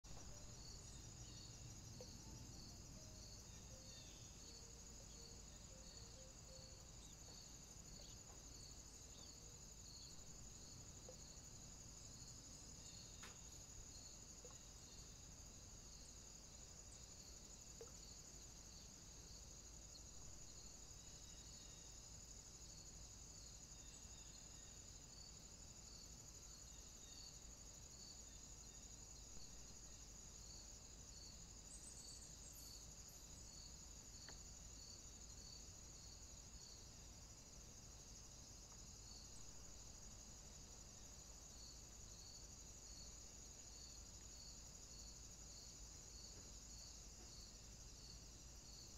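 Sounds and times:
faint crickets chirping: 0.0s - 48.9s.

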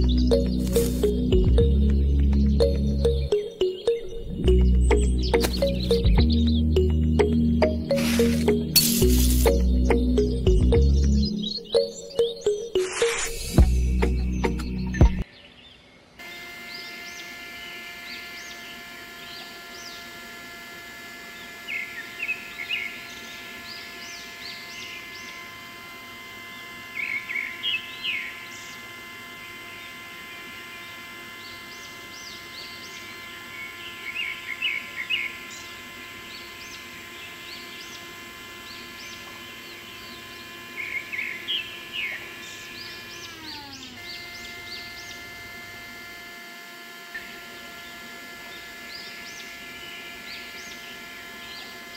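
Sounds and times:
small electric motor whine: 0.0s - 15.3s, 16.0s - 51.9s
birds chirping: 0.0s - 16.1s, 26.5s - 45.3s.

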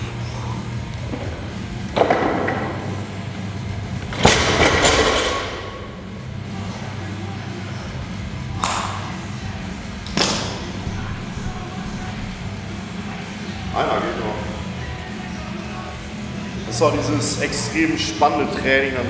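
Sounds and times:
background music: 0.0s - 19.0s.

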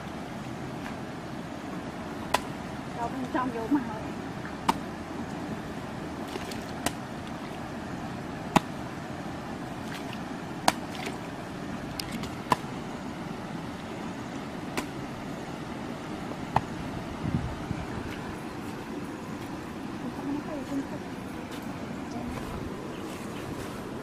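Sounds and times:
steady background hiss: 0.0s - 24.0s
hoe chopping into wet earth: 8.5s - 8.8s.

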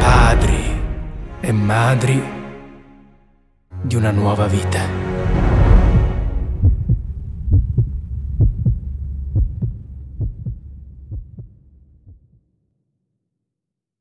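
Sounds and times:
low hum: 5.4s - 12.4s
heartbeat thumps: 5.7s - 12.4s.

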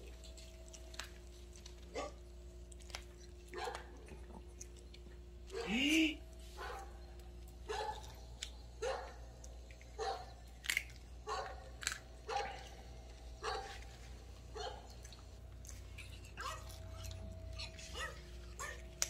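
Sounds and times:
small dog barking: 1.9s - 2.2s, 3.5s - 4.0s, 5.5s - 5.8s, 6.6s - 6.9s, 7.7s - 8.2s, 8.8s - 9.2s, 10.0s - 10.3s, 11.2s - 11.7s, 12.3s - 12.7s, 13.4s - 13.8s, 14.5s - 15.0s, 16.4s - 17.1s, 17.8s - 18.9s.

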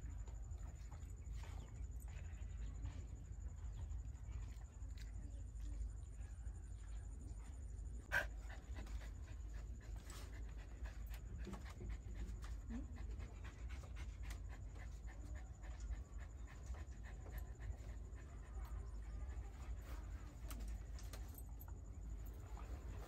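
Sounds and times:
dog panting: 7.5s - 23.0s.

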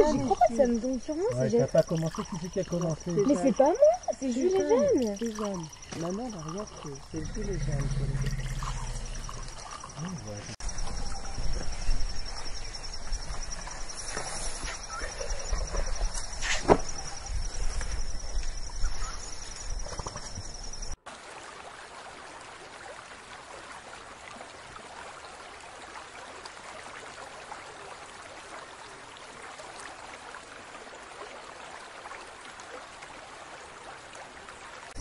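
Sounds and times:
soft steady hiss: 0.0s - 21.0s.

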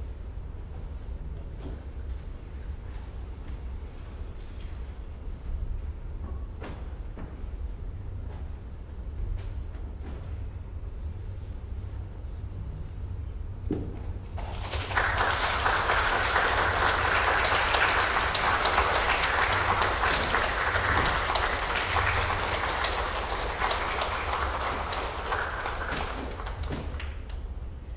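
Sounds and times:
audience applauding: 14.3s - 27.4s.

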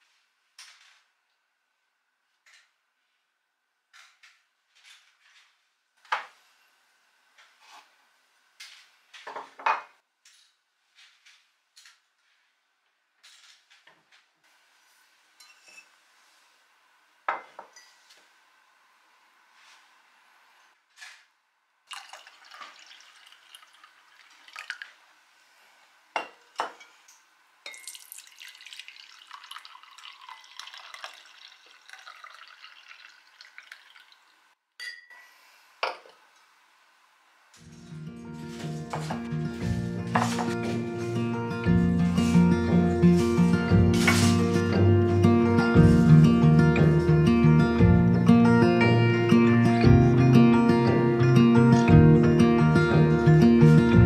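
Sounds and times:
liquid trickling and dripping: 21.9s - 25.1s, 27.7s - 34.6s
ceramic mugs clinking: 27.7s - 34.0s, 34.8s - 35.1s.

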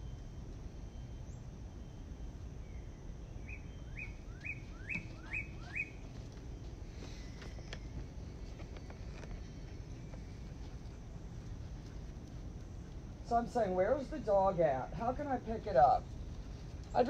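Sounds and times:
steady low rumble: 0.0s - 17.0s
bird calling rising notes: 1.0s - 6.1s.

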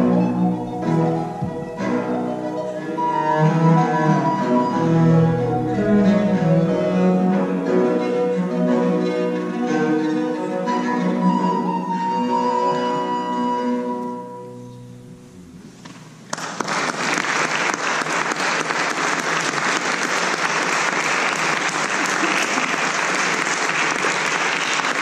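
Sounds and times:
baroque ensemble chord: 0.0s - 15.6s
audience applause: 16.3s - 25.0s.

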